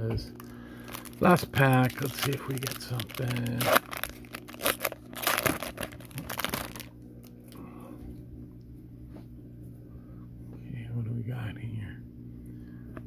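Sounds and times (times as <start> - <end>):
foil wrapper crinkling and tearing: 0.4 - 7.0
faint handling of cards: 0.4 - 8.2.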